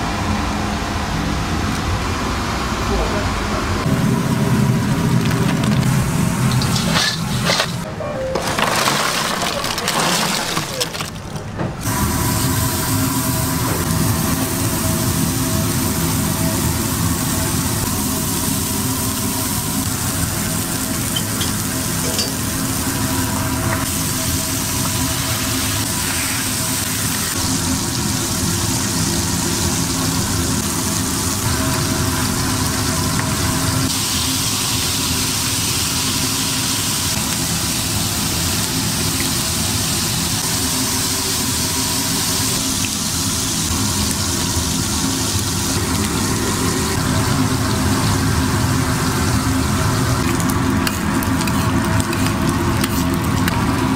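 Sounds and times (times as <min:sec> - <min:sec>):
burgers sizzling on griddle: 0:11.8 - 0:53.9.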